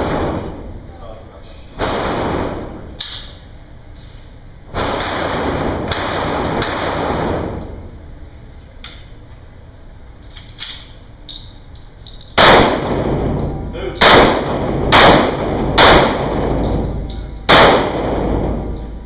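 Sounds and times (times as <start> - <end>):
handgun shots echoing: 12.4 - 19.0.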